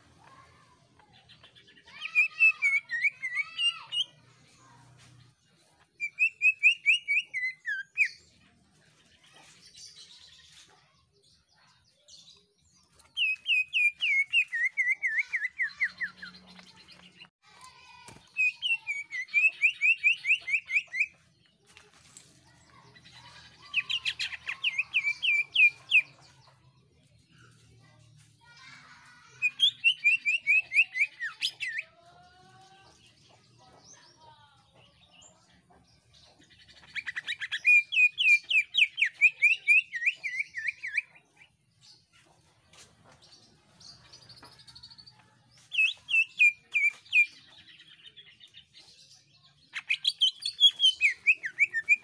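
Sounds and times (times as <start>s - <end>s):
bird singing shrill song: 1.2s - 4.2s, 6.0s - 8.4s, 11.6s - 17.3s, 18.1s - 21.2s, 23.0s - 26.4s, 29.4s - 31.9s, 36.4s - 41.6s, 43.8s - 52.0s.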